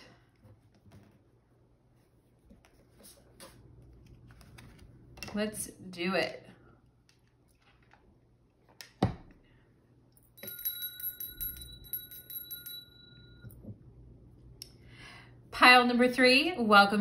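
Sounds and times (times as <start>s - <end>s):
hand bell ringing: 10.4s - 13.6s.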